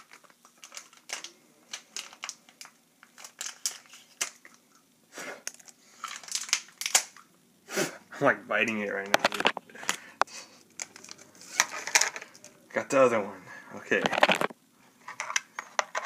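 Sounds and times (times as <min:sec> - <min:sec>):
plastic packaging crinkling: 0:00.0 - 0:04.8, 0:05.4 - 0:07.3, 0:08.6 - 0:10.0, 0:10.7 - 0:12.6, 0:13.9 - 0:16.0.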